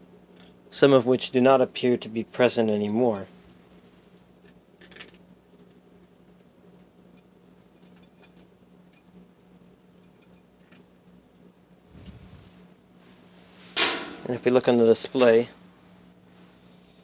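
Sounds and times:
washing machine spinning hum: 0:00.0 - 0:17.0.

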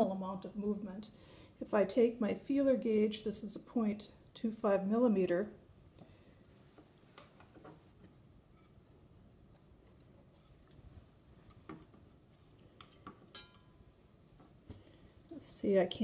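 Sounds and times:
metal blade clicking on skillet: 0:13.4 - 0:13.6.

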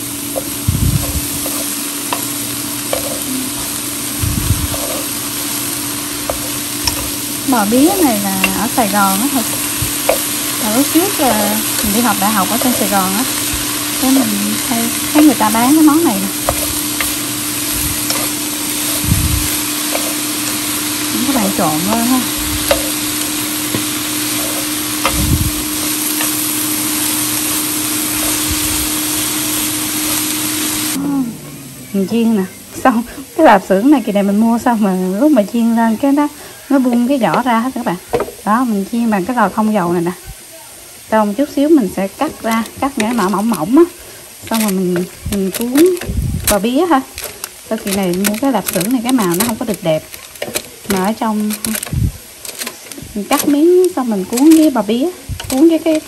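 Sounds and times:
low hum: 0:00.0 - 0:32.8
vegetables sizzling in a pan: 0:00.0 - 0:56.0
chopsticks clicking against a pan: 0:01.3 - 0:03.3, 0:06.2 - 0:07.2, 0:08.4 - 0:28.4, 0:42.4 - 0:43.6, 0:44.4 - 0:54.8, 0:55.4 - 0:56.0.

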